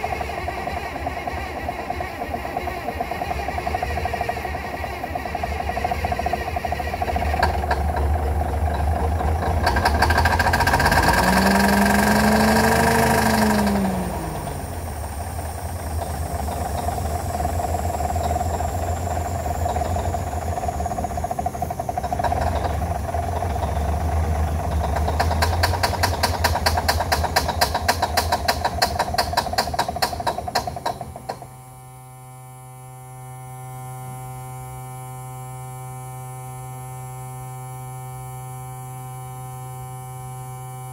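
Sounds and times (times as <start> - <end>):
diesel truck engine revving and clattering: 0.0 - 31.6.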